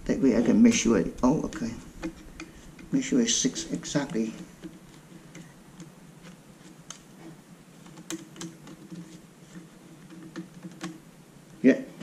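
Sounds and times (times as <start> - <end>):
fingers clicking plastic frame: 7.8 - 11.0.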